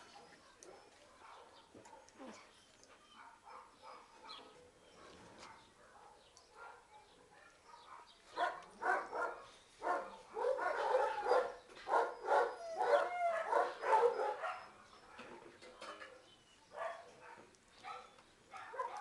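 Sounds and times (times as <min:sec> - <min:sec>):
dog barking: 0:00.1 - 0:02.1, 0:03.2 - 0:04.7, 0:05.4 - 0:14.7, 0:16.8 - 0:19.0
dog whining: 0:12.1 - 0:14.7.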